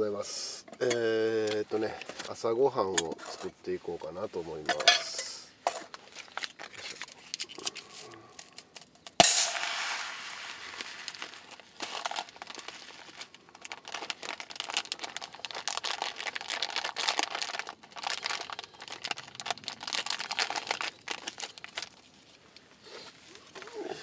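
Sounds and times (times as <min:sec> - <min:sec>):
paper or plastic crinkling: 0:05.9 - 0:09.0, 0:10.1 - 0:23.7.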